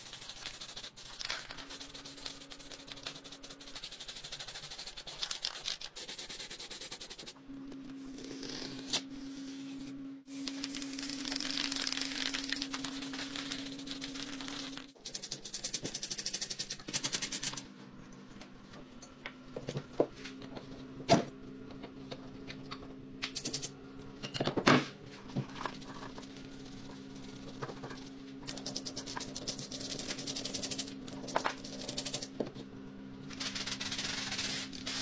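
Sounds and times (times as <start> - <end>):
low hum: 7.3 - 35.0
protective film peeling: 10.4 - 14.9.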